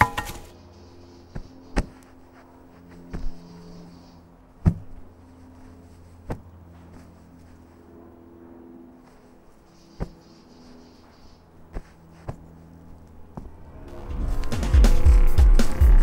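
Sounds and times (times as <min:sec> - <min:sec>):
low steady drone: 0:00.0 - 0:16.0
body thuds and scuffs on dirt: 0:01.3 - 0:03.7, 0:04.6 - 0:07.7, 0:10.0 - 0:10.2, 0:11.7 - 0:13.6.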